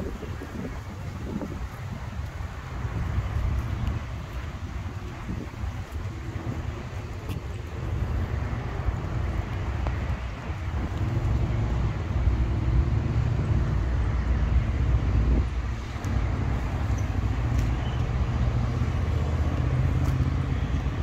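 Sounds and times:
road traffic rumble: 0.0s - 21.0s
wind on microphone: 0.0s - 21.0s.

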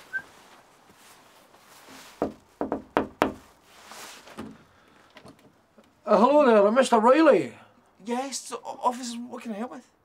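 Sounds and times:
knocking on glass door: 2.2s - 3.4s.

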